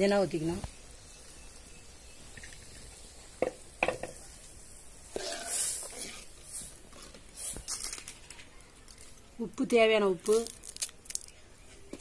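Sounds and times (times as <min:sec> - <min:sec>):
ladle scraping stirring: 0:05.1 - 0:07.2.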